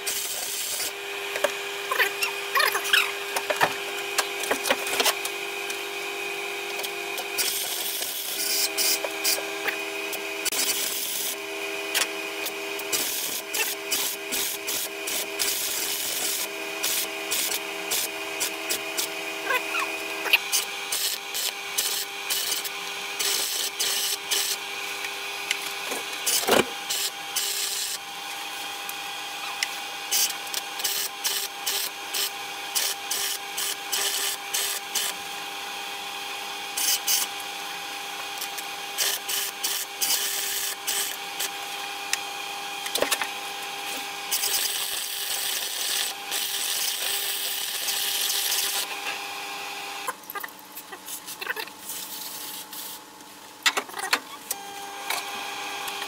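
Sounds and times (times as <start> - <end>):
welding arc crackling: 6.7 - 28.1, 43.9 - 48.9.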